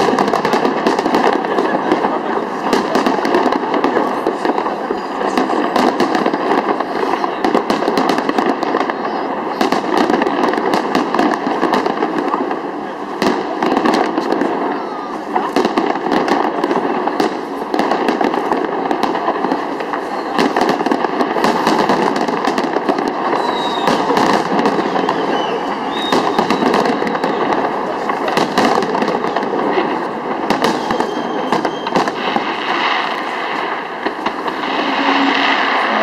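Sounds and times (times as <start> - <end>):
fireworks bursting: 0.0 - 36.0
firework whistles: 19.8 - 20.8, 21.4 - 29.5, 30.5 - 36.0.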